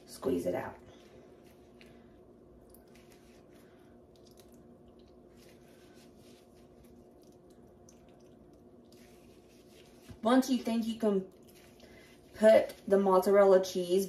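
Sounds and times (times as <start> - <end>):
steady low hum: 0.0 - 14.0
wet squishing of cheese curds: 0.9 - 10.2, 11.0 - 12.9.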